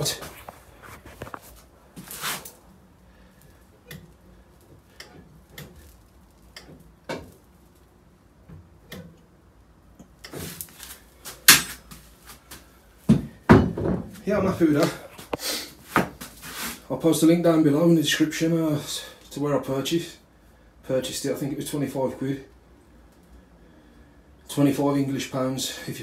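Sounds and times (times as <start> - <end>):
rustling: 0.0 - 8.0, 10.3 - 13.2.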